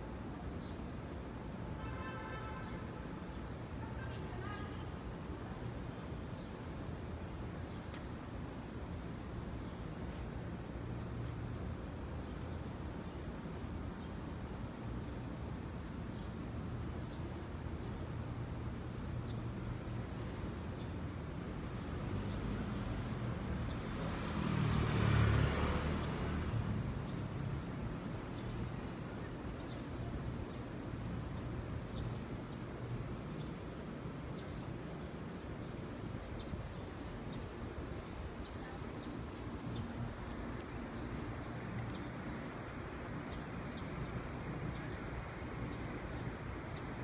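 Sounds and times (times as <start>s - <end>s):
street background noise: 0.0s - 47.0s
vehicle passing by: 23.8s - 27.3s.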